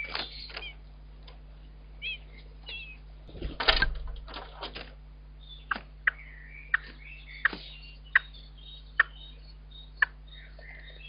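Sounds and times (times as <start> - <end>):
low steady hum: 0.0 - 11.0
faint high twittering: 5.4 - 11.0.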